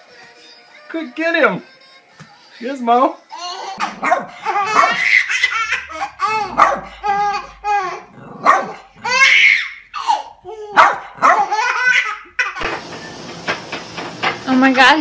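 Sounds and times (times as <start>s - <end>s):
baby laughing: 3.3s - 12.6s
small dogs barking: 3.8s - 7.4s, 8.2s - 9.6s, 10.7s - 12.0s.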